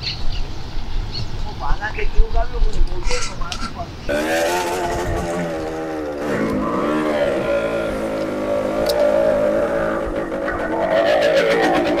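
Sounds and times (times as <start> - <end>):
motorcycle engine revving: 4.1 - 12.0.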